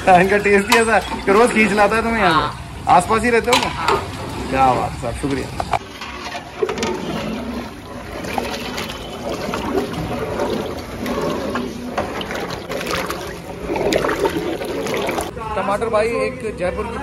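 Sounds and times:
water splashing and trickling: 2.9s - 15.3s.

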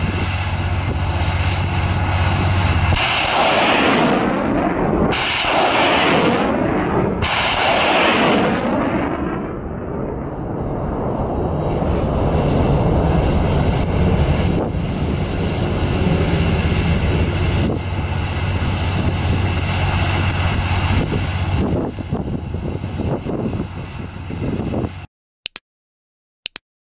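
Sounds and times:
rocket motors roaring: 0.0s - 25.1s
sharp cracks: 2.9s - 6.5s.

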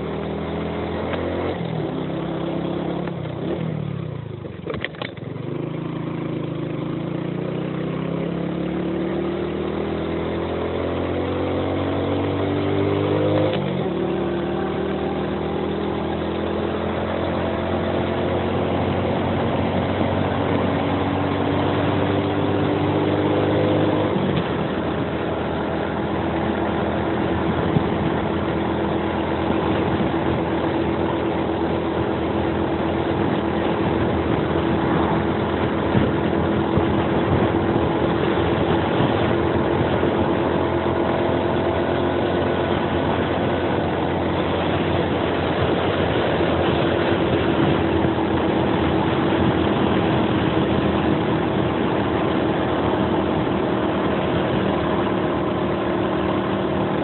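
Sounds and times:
motorcycle engine pulling uphill: 0.0s - 57.0s
wind rush: 24.0s - 41.2s, 41.8s - 57.0s.

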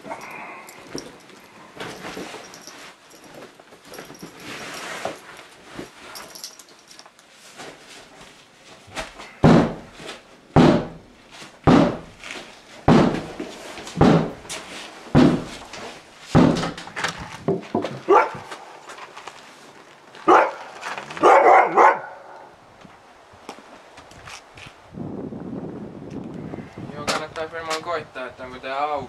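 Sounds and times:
dog barking: 18.1s - 18.5s, 20.3s - 22.5s.

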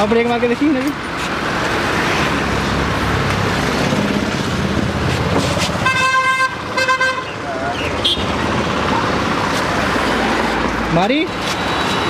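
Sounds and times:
road traffic noise: 0.0s - 12.0s
vehicle horn: 5.8s - 7.4s, 8.0s - 8.4s.

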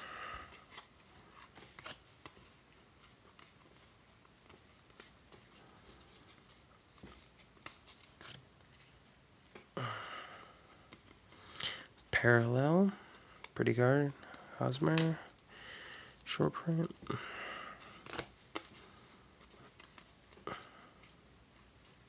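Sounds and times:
cards sliding softly: 0.0s - 9.1s, 10.5s - 22.0s
cards clicking and flicking: 14.2s - 15.4s, 17.8s - 18.8s.

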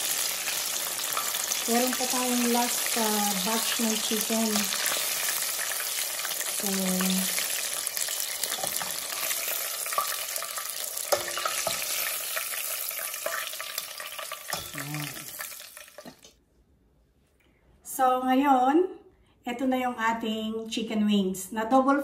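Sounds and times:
oil sizzling and crackling: 0.0s - 16.3s.

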